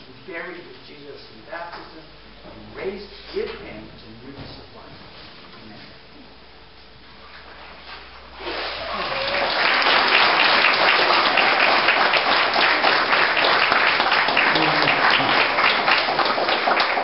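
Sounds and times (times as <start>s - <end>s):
crowd applauding: 8.5s - 17.0s.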